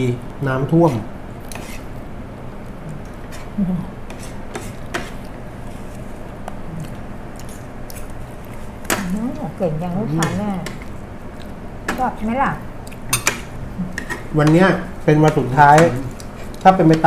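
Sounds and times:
low room hum: 0.0s - 17.0s
cutlery clicking on plates: 13.1s - 16.3s.

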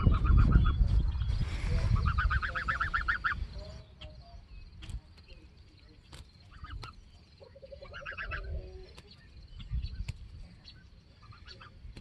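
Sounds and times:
goose soft calls: 1.9s - 3.5s, 7.6s - 8.8s.

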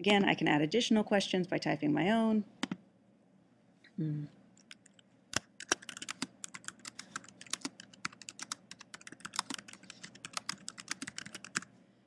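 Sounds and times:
typing on computer keyboard: 4.6s - 11.7s.

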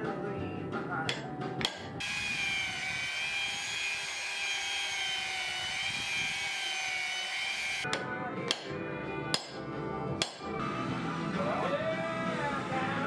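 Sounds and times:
belt sander on wood: 2.0s - 7.9s.

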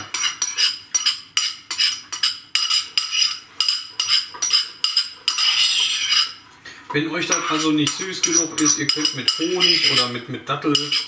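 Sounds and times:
utensil knocking in ringing metal bowl: 7.3s - 10.1s.

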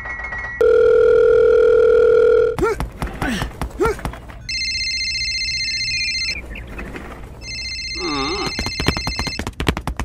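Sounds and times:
electronic telephone ringtone: 0.6s - 2.6s, 4.5s - 6.4s, 7.4s - 9.4s.

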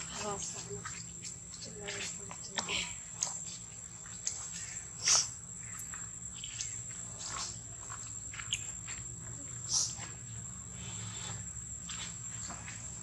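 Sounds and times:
baby monkeys squeaking: 9.6s - 10.0s.

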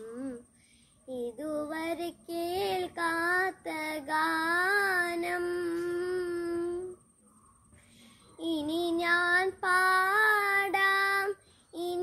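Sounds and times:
boy singing solo: 8.4s - 12.0s.

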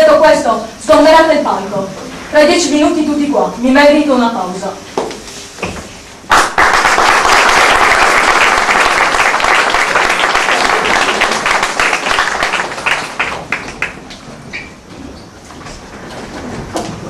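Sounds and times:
audience applauding: 6.3s - 14.3s.

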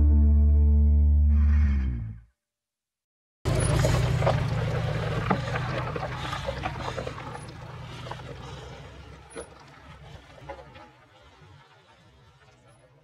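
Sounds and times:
gravel crunching under tyres: 3.5s - 13.0s
truck engine rumble: 3.5s - 13.0s.

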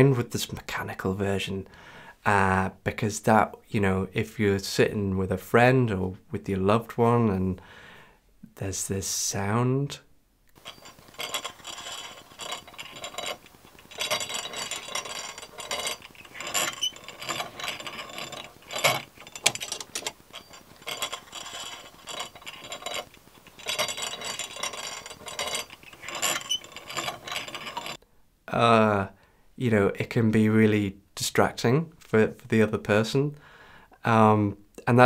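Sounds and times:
pedal exerciser rattling and clunking: 10.6s - 28.0s.

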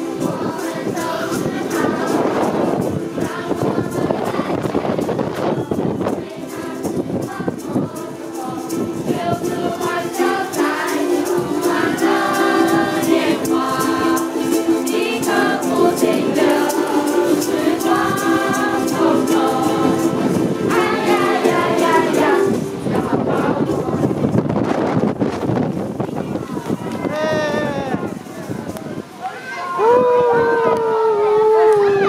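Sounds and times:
group singing: 0.0s - 24.8s
ukuleles strumming: 0.0s - 26.0s.

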